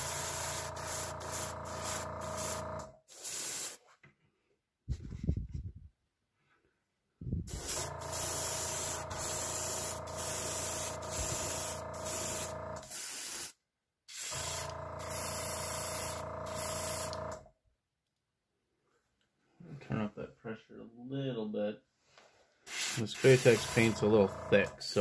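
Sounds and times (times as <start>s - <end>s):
air compressor humming: 0.0s - 3.7s, 7.5s - 13.5s, 14.2s - 17.5s, 22.7s - 25.0s
airbrush spraying hiss: 0.0s - 3.8s, 7.5s - 17.2s, 22.7s - 24.2s.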